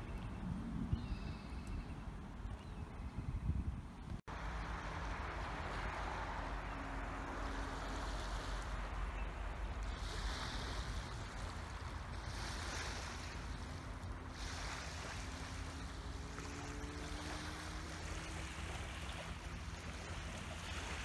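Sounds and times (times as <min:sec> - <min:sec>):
wind rumble on microphone: 0:00.0 - 0:21.0
faint rising hum: 0:04.3 - 0:21.0
small waves lapping: 0:04.3 - 0:21.0.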